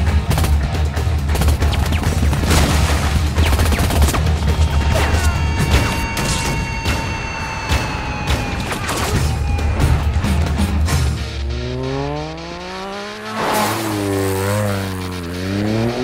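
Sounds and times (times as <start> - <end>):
dramatic film score: 0.0 - 16.0
falling whines: 4.8 - 16.0.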